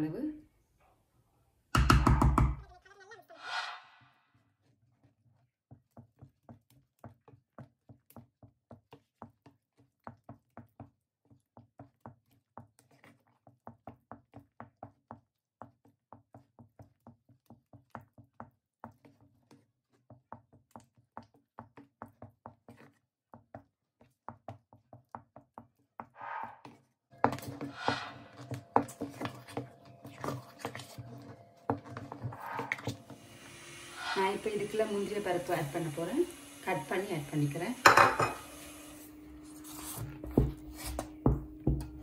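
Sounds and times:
wooden spatula knocking pot: 0:01.7 - 0:02.6.

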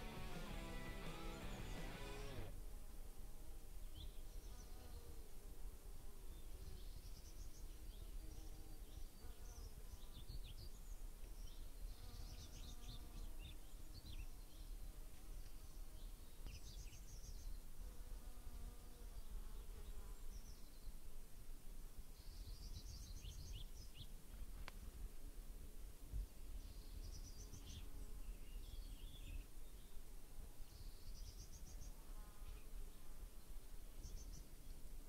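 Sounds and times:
small birds chirping: 0:00.0 - 0:02.5, 0:06.3 - 0:17.7, 0:18.9 - 0:21.0, 0:22.2 - 0:24.2, 0:26.2 - 0:30.0, 0:30.6 - 0:34.9.

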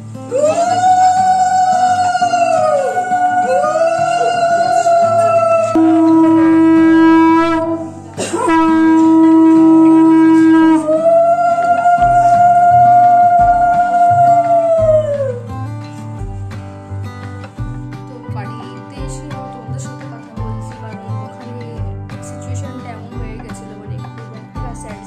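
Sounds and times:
conch shells blown: 0:00.0 - 0:17.2.

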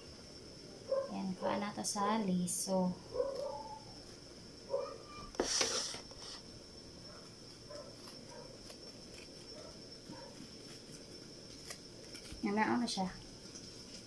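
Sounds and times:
knife scraping gourd pulp: 0:05.3 - 0:06.4.

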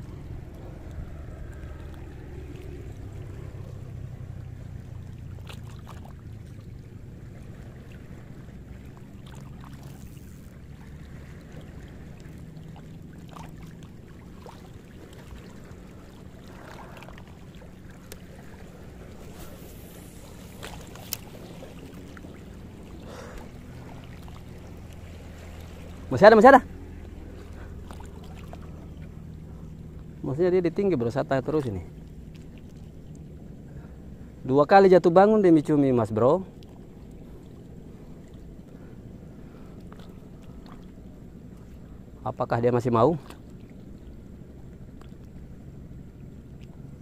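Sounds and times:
wind and water rumble: 0:00.0 - 0:47.0
faint clicks: 0:18.0 - 0:18.3.

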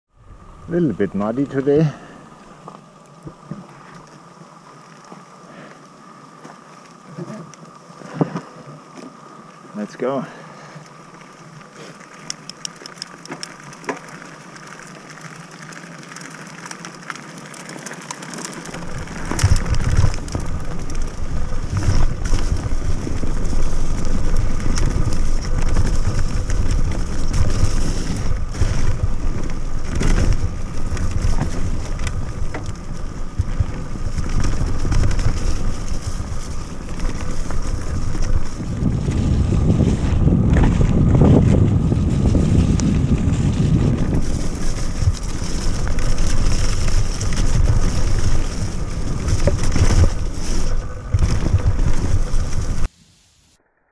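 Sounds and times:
tyres crunching over dirt: 0:01.1 - 0:52.9
bike knocking and rattling: 0:11.8 - 0:52.9
wind buffeting microphone: 0:18.6 - 0:52.9.

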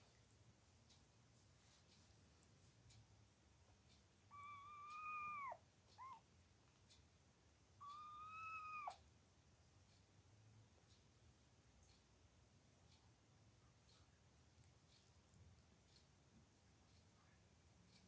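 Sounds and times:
kitten chirp: 0:04.3 - 0:06.2, 0:07.8 - 0:09.0
kitten mewing: 0:04.3 - 0:06.2, 0:07.8 - 0:09.0.

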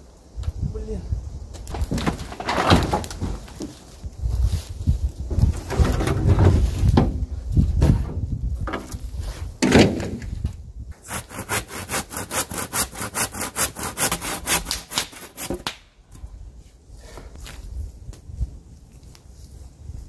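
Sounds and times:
wooden board thud: 0:01.7 - 0:03.7, 0:09.6 - 0:10.4
hand saw cutting wood: 0:11.0 - 0:15.6.

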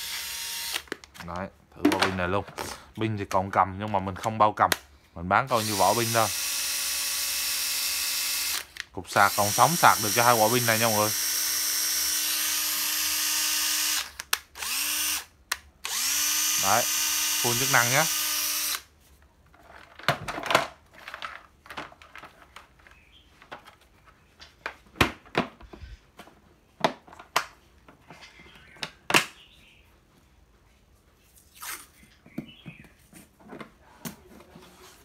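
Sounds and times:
masking tape ripping off roll: 0:31.4 - 0:32.0.

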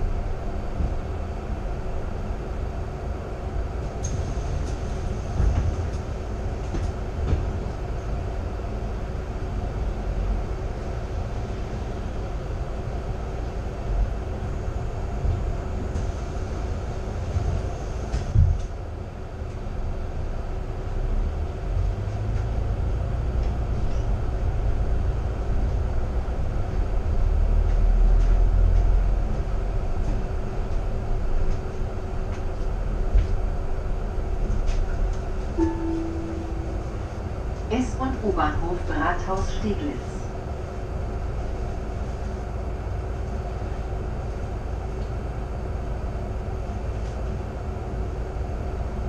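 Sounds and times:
bus engine and road rumble: 0:00.0 - 0:49.0
faint constant hum: 0:00.0 - 0:49.0.

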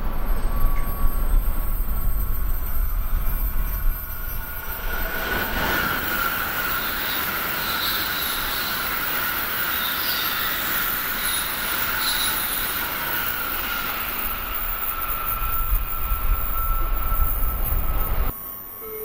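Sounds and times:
train passing at speed: 0:00.0 - 0:18.3
high steady whine: 0:00.0 - 0:19.0.

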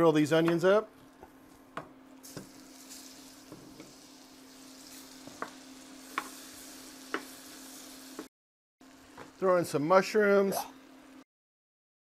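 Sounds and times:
onions sizzling in a skillet: 0:02.1 - 0:11.2.

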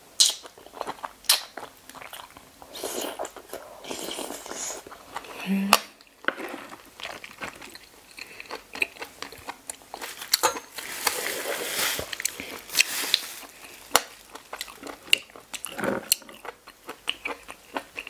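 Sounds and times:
wet chewing with crunchy clicks: 0:00.2 - 0:10.4, 0:12.2 - 0:18.0.

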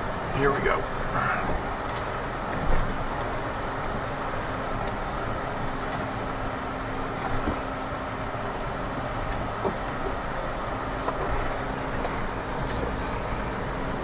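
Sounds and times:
vehicle engine and drivetrain rumble: 0:00.0 - 0:14.0
vehicle knocks and rattles: 0:07.1 - 0:07.8, 0:09.2 - 0:10.4.

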